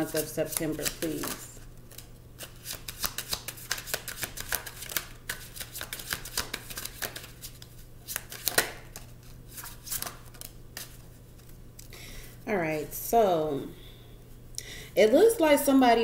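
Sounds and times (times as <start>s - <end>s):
cards being shuffled: 0.0s - 11.6s.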